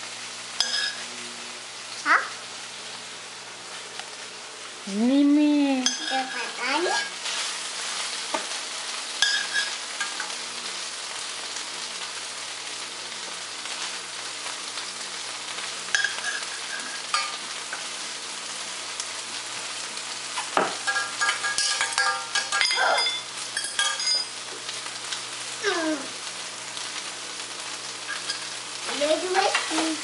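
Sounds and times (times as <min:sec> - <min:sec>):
metal clinks on pot: 0:00.6 - 0:01.0, 0:09.2 - 0:10.2, 0:15.9 - 0:17.4, 0:20.7 - 0:24.3
spoon stirring water in saucepan: 0:20.8 - 0:24.3.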